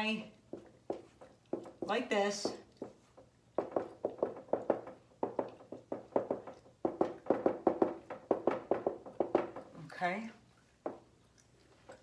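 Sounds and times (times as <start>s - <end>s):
marker tapping on whiteboard: 0.5s - 9.7s.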